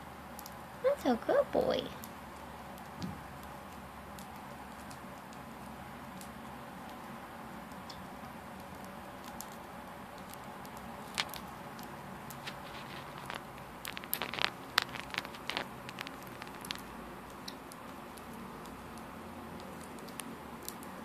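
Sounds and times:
parrots cracking seeds: 2.0 - 21.0.

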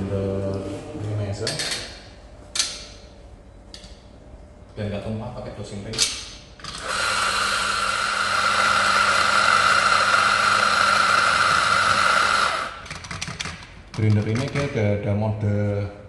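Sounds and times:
coffee grinder whirring: 6.6 - 13.1.

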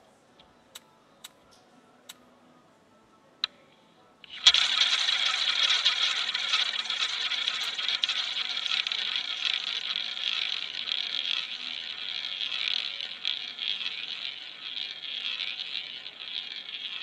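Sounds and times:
roulette ball rolling on wheel: 4.3 - 17.0.

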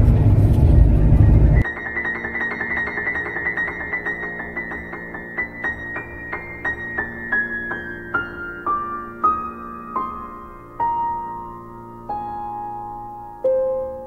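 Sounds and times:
piano music: 1.5 - 14.0.

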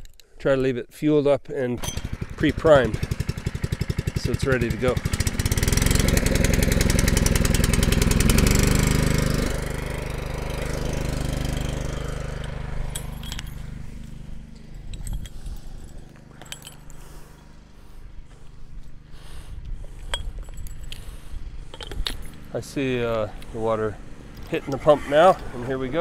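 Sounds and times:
small gas engine pump running: 1.8 - 26.0
metallic clicks and clinks: 12.3 - 17.5, 20.0 - 21.1, 21.7 - 22.5.

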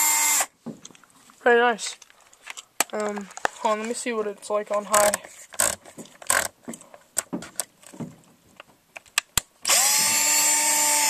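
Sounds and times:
cordless drill whining: 0.0 - 0.5, 9.6 - 11.0
handling clicks and knocks: 4.6 - 9.4.

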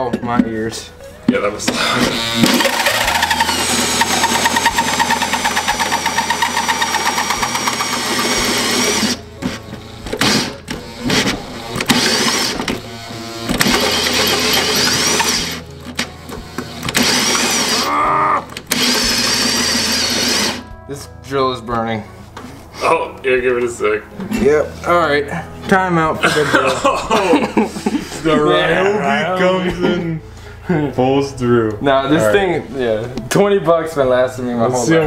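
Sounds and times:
drill cutting sheet metal: 1.7 - 20.6.

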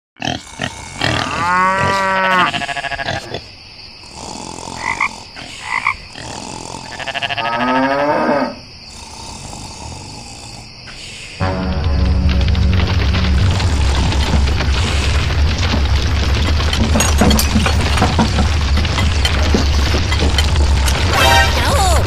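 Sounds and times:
cow mooing: 1.2 - 3.2, 7.0 - 8.6.

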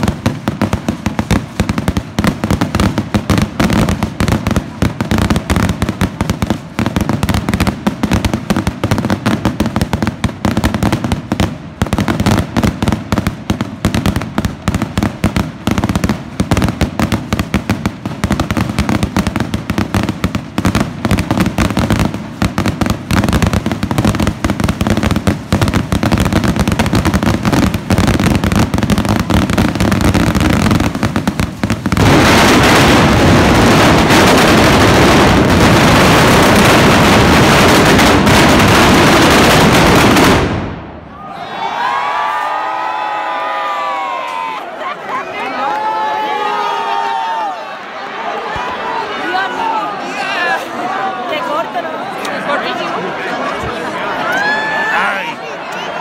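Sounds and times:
firework fountain hissing: 0.0 - 40.8
fireworks crackling and popping: 0.0 - 41.1.

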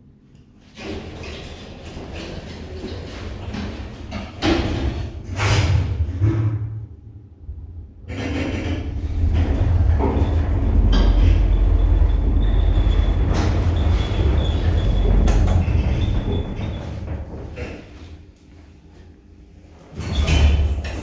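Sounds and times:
elevator low rumble: 0.0 - 21.0.

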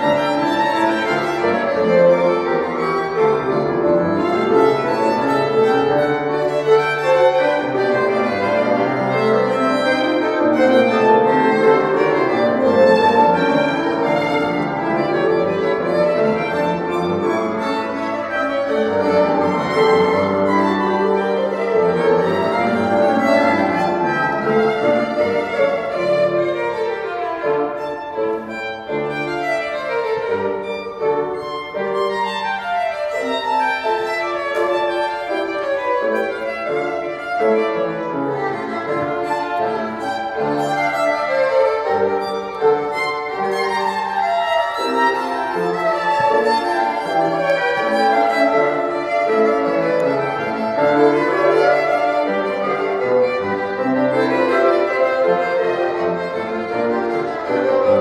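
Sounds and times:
piano accompaniment: 0.0 - 58.0
violins playing classical duet: 0.0 - 58.0.

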